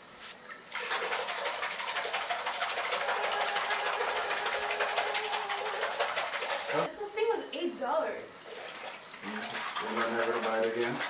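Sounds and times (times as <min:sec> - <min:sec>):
faint steady hum: 0:00.0 - 0:10.5
water rushing in bathtub: 0:00.7 - 0:06.9, 0:08.4 - 0:11.0.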